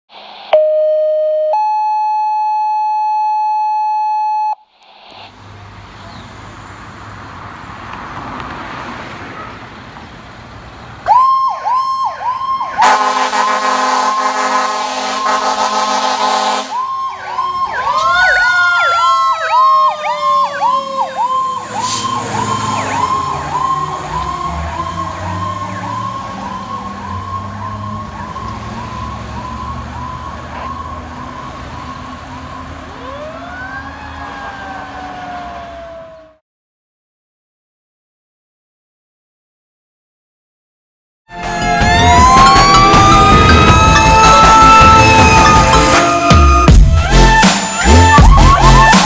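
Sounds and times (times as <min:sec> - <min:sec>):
siren tone sliding down: 0:00.1 - 0:05.3, 0:11.1 - 0:36.4, 0:41.3 - 0:49.0
fire engine siren yelping: 0:00.5 - 0:04.6, 0:11.0 - 0:36.4, 0:41.3 - 0:49.0
street traffic: 0:04.6 - 0:36.4, 0:41.3 - 0:49.0
loud air horn blast: 0:12.8 - 0:16.8.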